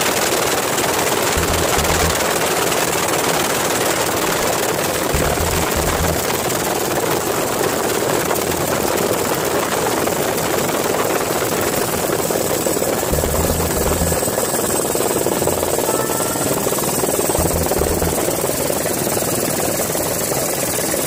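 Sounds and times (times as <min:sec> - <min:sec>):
thin high whine: 0:17.4 - 0:18.4.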